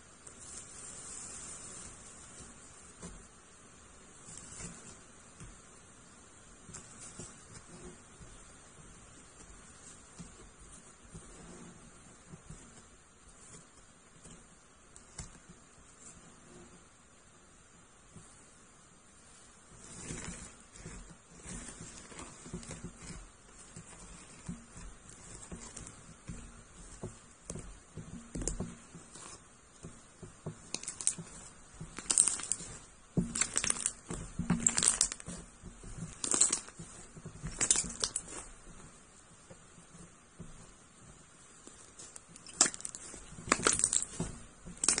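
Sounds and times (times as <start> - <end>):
slime crackling and popping: 30.6 - 38.5, 42.0 - 45.0.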